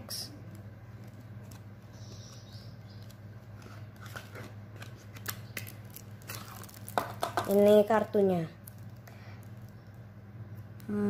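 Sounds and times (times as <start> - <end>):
steady low hum: 0.0 - 11.0
cards rustling and clicking: 0.5 - 7.9.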